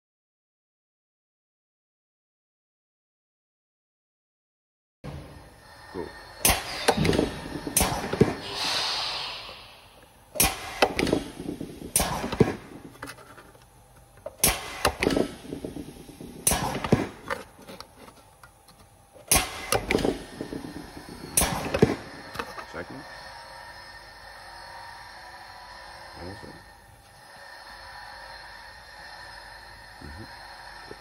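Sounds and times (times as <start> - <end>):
compressed air hissing: 5.6 - 12.9.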